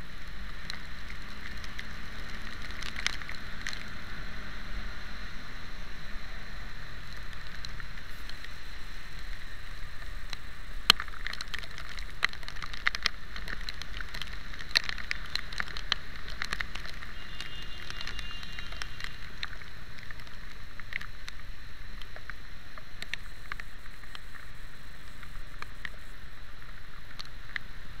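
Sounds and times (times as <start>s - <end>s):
raindrops ticking on camera: 0.0s - 28.0s
tyres on wet road: 0.0s - 28.0s
wind rumble: 0.0s - 28.0s.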